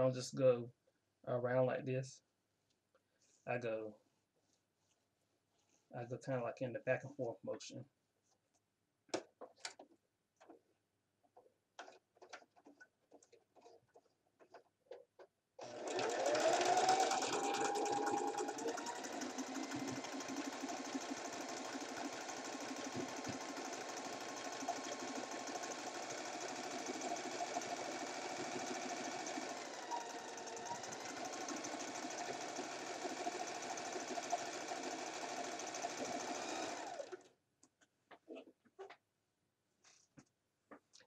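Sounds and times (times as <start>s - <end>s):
sewing machine motor whine: 15.6s - 37.2s.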